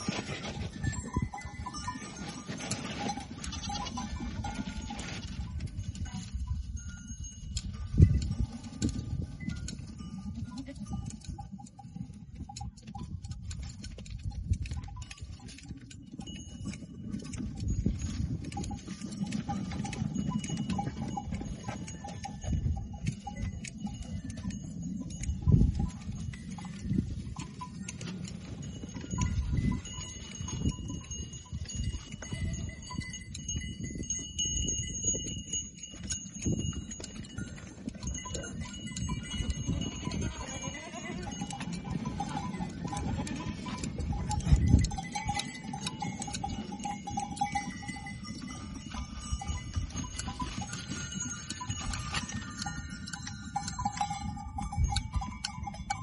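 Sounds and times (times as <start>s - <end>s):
high ringing tone: 0.0s - 8.7s
shears clicking: 12.5s - 56.0s
goats bleating: 40.2s - 41.6s.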